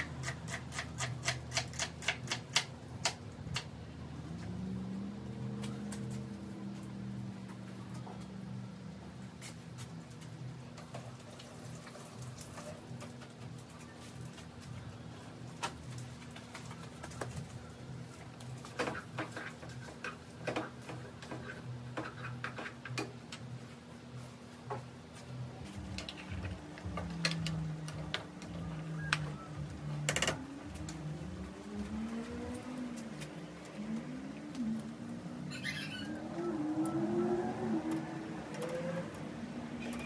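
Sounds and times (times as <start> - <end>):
low hum: 23.4 - 40.0.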